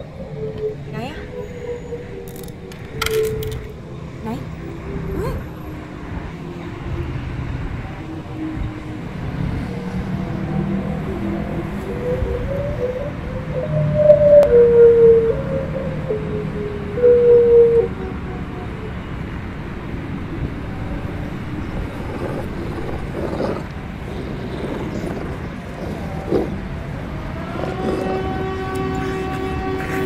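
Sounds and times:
monster siren-like wail: 0.0s - 24.1s, 24.9s - 30.0s
steady siren drone: 0.0s - 30.0s
rough monster growls: 22.0s - 30.0s.

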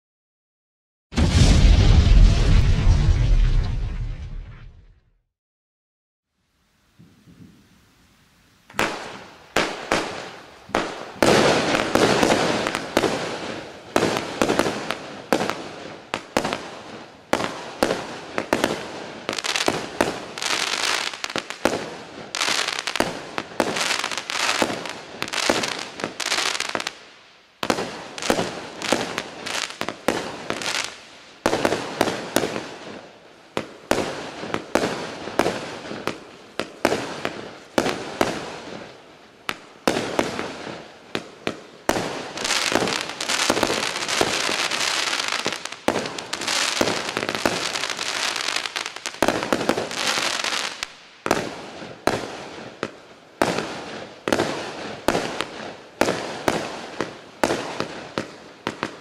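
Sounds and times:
firework cake firing: 1.2s - 4.7s.

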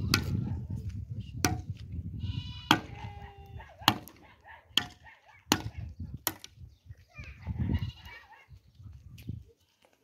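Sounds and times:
shovel striking stony earth: 0.0s - 0.4s
livestock bleating: 2.2s - 3.6s.

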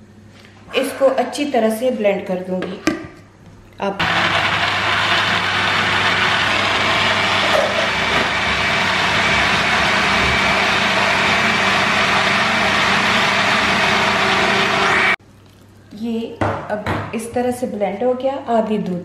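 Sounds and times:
blender motor running: 4.0s - 15.2s.

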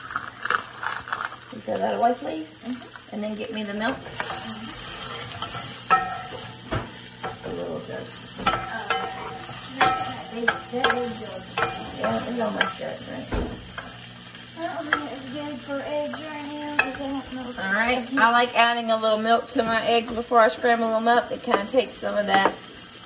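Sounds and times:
sausage sizzling in skillet: 0.0s - 23.0s
utensil scraping iron pan: 4.0s - 7.7s, 8.3s - 14.1s.

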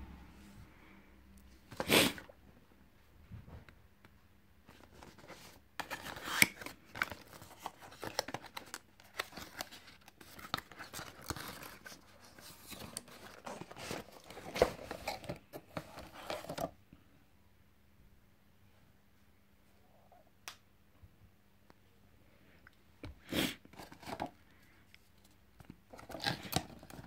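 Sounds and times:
cardboard scraping and rustling: 4.7s - 16.7s
cardboard box being opened: 4.8s - 16.7s.

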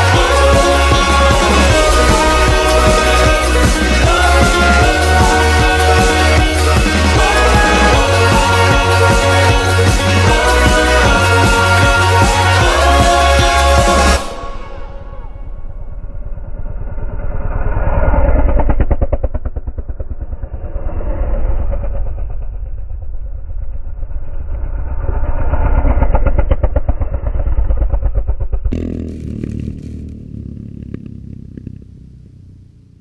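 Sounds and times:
motorcycles riding past: 28.7s - 33.0s.

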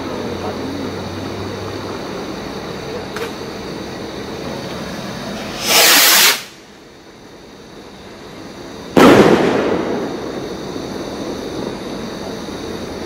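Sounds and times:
background rumble and hiss: 0.0s - 13.0s
firework rocket whoosh: 4.6s - 6.7s.

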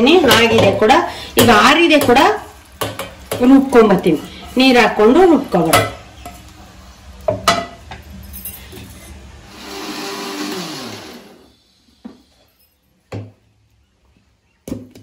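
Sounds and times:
mixer grinder motor whine: 9.4s - 11.9s.

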